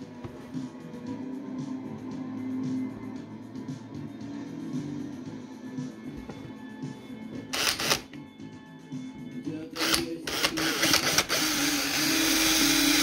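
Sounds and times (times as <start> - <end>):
background music: 0.0 - 13.0
power drill boring into plastic: 7.6 - 8.1, 9.8 - 13.0.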